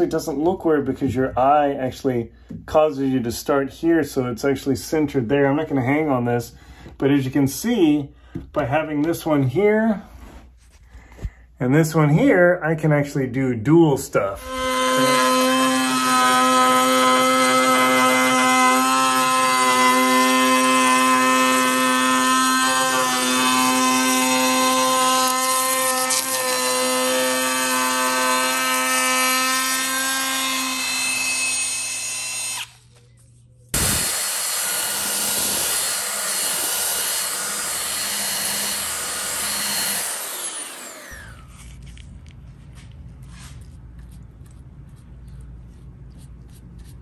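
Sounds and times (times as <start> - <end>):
router cutting wood: 14.4 - 32.8, 33.8 - 41.8.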